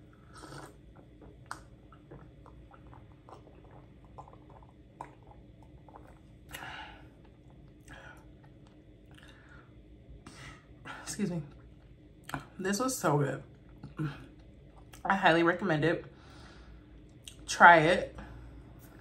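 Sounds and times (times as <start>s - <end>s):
swallowing and gulping: 0.0s - 9.5s, 13.7s - 15.0s.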